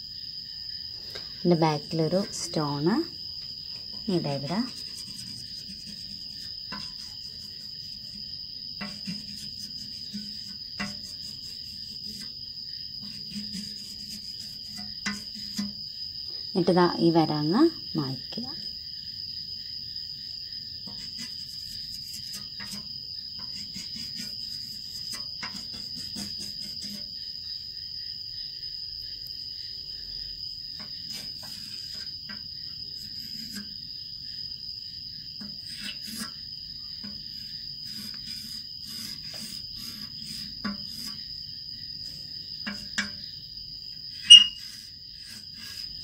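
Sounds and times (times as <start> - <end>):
crickets trilling: 0.0 - 46.0
chalk scraping on blackboard: 4.4 - 12.4, 13.0 - 15.8, 20.9 - 27.1, 30.8 - 32.4, 33.0 - 33.8, 35.4 - 36.4, 37.0 - 41.2, 44.2 - 46.0.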